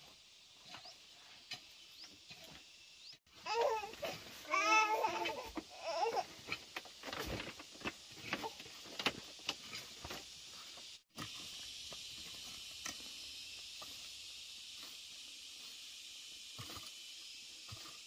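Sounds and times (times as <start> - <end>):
steady high hiss: 0.0 - 18.0.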